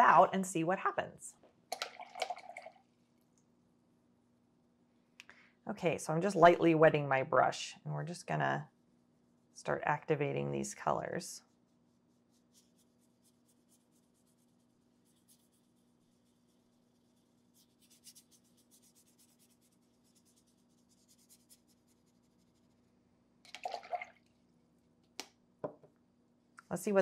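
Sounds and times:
wet brush scratching on paper: 0:10.8 - 0:23.0.

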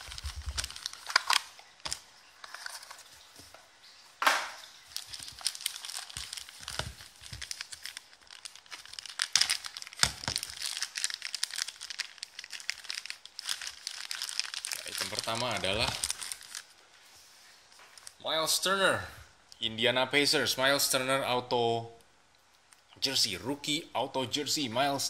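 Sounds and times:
plastic wrapping crinkling: 0:00.0 - 0:03.8, 0:04.5 - 0:18.2.

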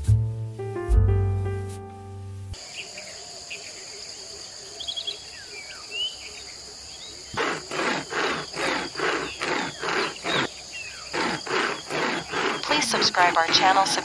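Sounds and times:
insect drone: 0:02.6 - 0:14.0
hand chain saw cutting branch: 0:07.4 - 0:10.5, 0:11.1 - 0:14.0.

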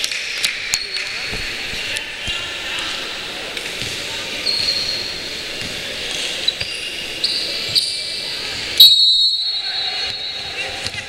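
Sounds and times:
sneakers squeaking on court: 0:03.7 - 0:08.9.

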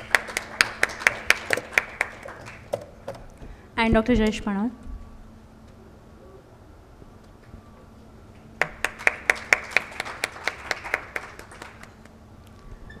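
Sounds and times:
hand clapping: 0:00.0 - 0:03.0, 0:08.6 - 0:12.2.

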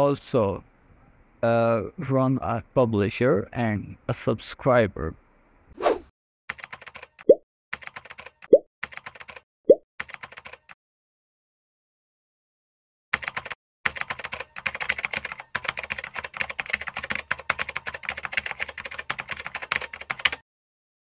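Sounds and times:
computer keyboard clicks: 0:06.5 - 0:09.4, 0:10.0 - 0:10.8, 0:13.2 - 0:20.4.

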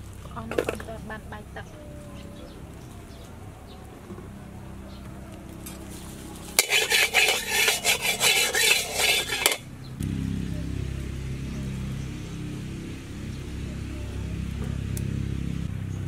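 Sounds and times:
low steady noise: 0:00.0 - 0:16.0
metal ladle scraping wok: 0:05.7 - 0:09.7.

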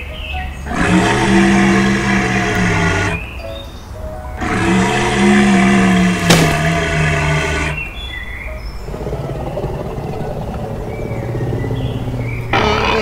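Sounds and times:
growling roar: 0:00.6 - 0:03.2, 0:04.4 - 0:07.9, 0:08.8 - 0:13.0.

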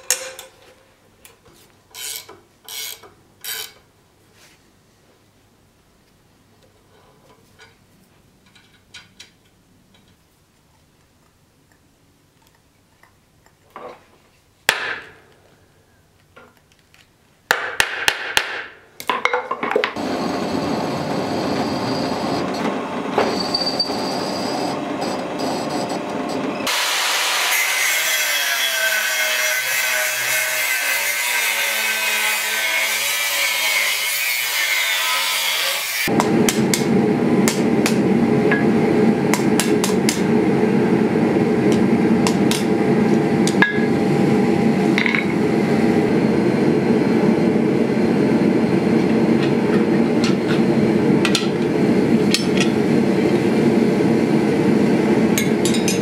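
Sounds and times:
hammer striking steel on anvil: 0:43.4 - 0:44.0, 0:55.4 - 0:56.0.

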